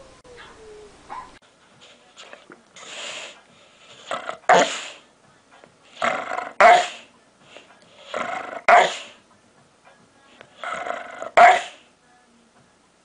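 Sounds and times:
dog growling and barking: 4.0 - 4.9, 6.0 - 7.0, 8.1 - 9.2, 10.6 - 11.8.

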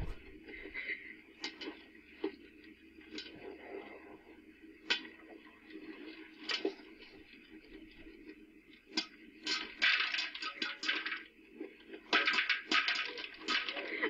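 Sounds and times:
faint steady hum: 0.0 - 14.0
popcorn kernels popping: 9.0 - 11.2, 12.1 - 14.0.

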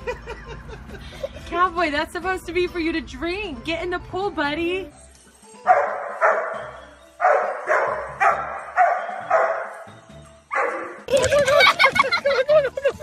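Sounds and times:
dog barking: 5.7 - 9.9, 10.5 - 11.0.

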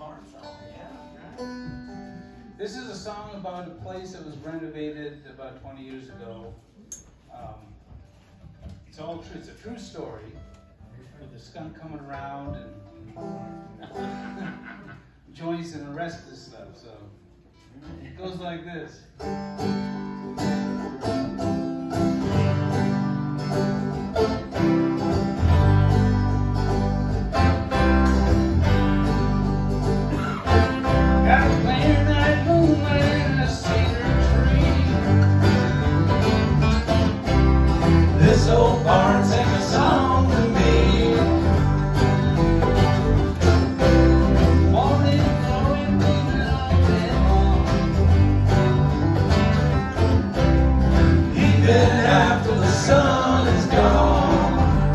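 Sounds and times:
guitars and mandolin picking: 0.0 - 7.2, 8.0 - 16.5, 17.4 - 54.9
bass: 17.6 - 54.9
man singing: 31.2 - 35.7, 38.1 - 42.3, 44.6 - 48.2, 51.2 - 54.9.

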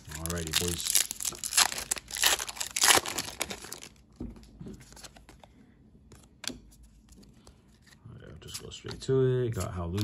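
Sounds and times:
foil wrapper crinkling and tearing: 0.0 - 4.0.

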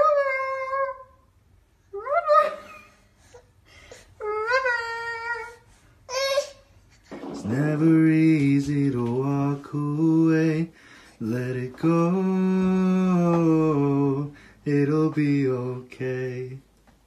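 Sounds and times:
person singing in a low voice: 7.4 - 16.8.

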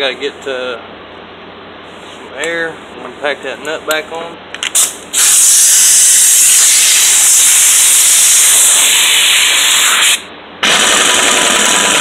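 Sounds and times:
pneumatic impact wrench: 4.6 - 12.0.

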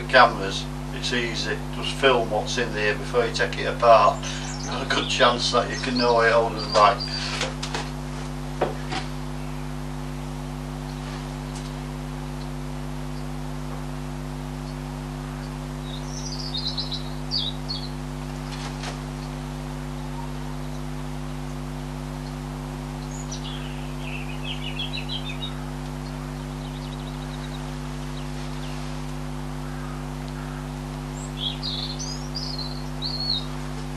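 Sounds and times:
steady low hum: 0.0 - 33.9
small bird chirping: 4.2 - 7.3, 14.6 - 19.4, 22.2 - 28.9, 29.6 - 33.7.

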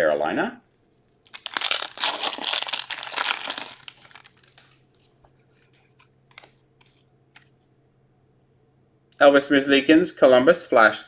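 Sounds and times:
foil wrapper tearing and crinkling: 1.2 - 4.9.

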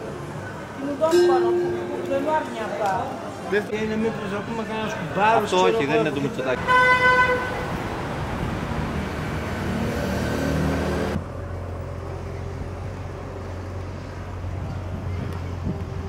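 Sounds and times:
cars passing by: 0.0 - 16.0
steady traffic hum: 0.0 - 16.0
car horn toot: 6.6 - 7.6.

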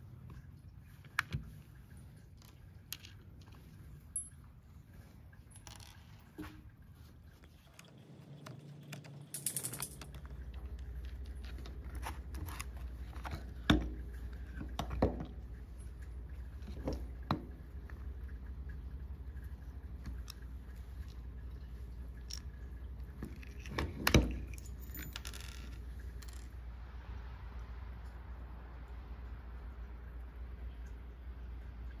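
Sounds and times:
low steady hum: 0.0 - 32.0
plastic drill parts clicking and scraping: 11.0 - 13.5.

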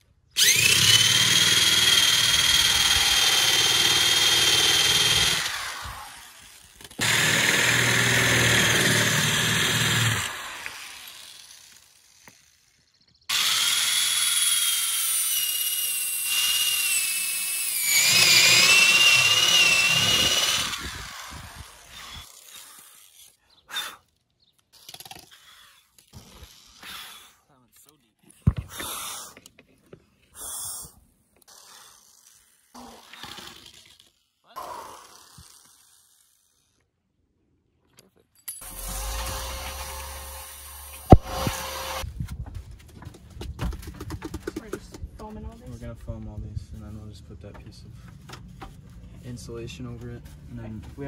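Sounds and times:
electric drill boring plywood: 0.4 - 12.6, 13.3 - 22.9, 38.6 - 42.1.

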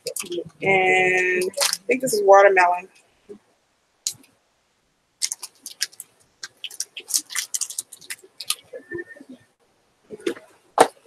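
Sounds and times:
wrapper crackling and clicking: 1.5 - 1.8, 5.2 - 8.7.

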